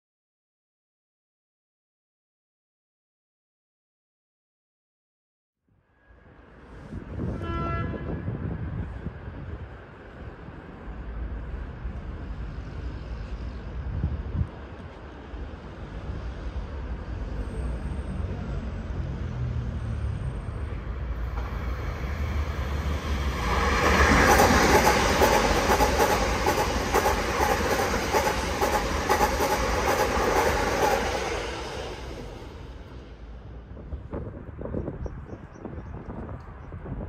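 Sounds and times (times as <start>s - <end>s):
train whine: 5.8s - 34.6s
train rumble passing: 6.0s - 37.0s
wheels clacking over rail joints: 22.6s - 31.5s.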